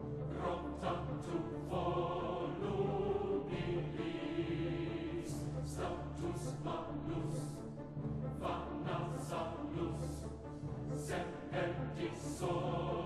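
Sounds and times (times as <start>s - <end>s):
choir singing: 0.0s - 13.0s.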